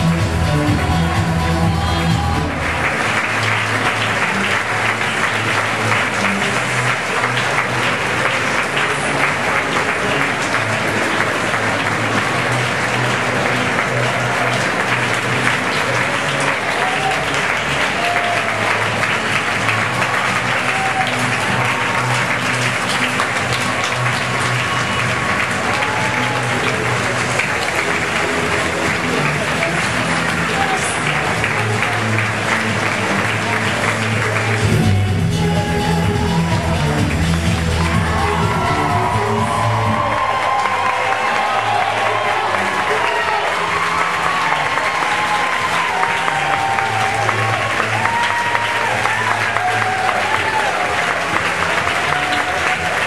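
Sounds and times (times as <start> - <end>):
runway music with bass pattern: 0.0 - 16.6, 17.3 - 40.3
audience applause: 0.0 - 53.0.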